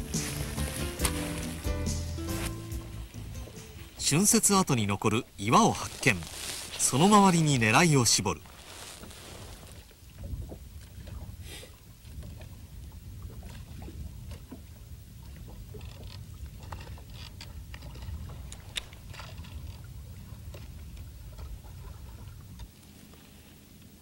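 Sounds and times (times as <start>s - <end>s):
wind rumble: 8.4s - 22.7s.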